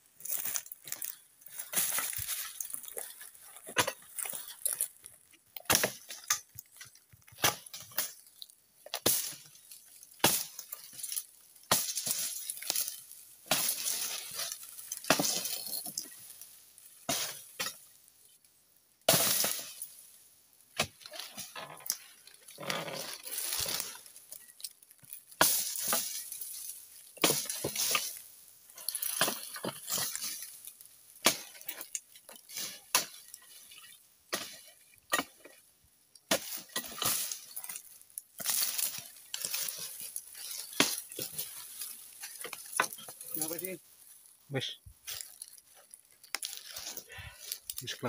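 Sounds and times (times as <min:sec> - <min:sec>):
dry rustling and crackling: 0:00.0 - 0:48.0
pruning blade chopping palm fronds: 0:05.6 - 0:06.3, 0:09.0 - 0:09.6, 0:10.2 - 0:16.0, 0:17.0 - 0:17.8, 0:19.1 - 0:19.8, 0:20.7 - 0:22.0, 0:25.4 - 0:28.2, 0:28.9 - 0:30.5, 0:31.2 - 0:33.4, 0:34.3 - 0:35.5, 0:36.3 - 0:43.7.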